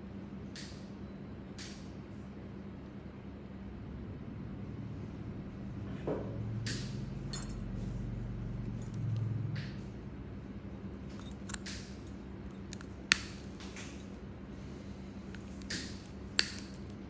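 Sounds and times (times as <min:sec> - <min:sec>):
low steady hum: 0:00.0 - 0:17.0
metal instruments clicking: 0:07.3 - 0:07.6, 0:11.1 - 0:14.1
sharp metallic click: 0:11.1 - 0:13.4, 0:15.4 - 0:17.0.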